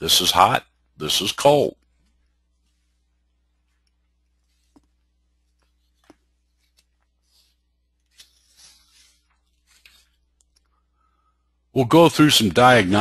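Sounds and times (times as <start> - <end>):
low steady hum: 0.0 - 13.0
faint clicks and rustles: 1.8 - 10.8.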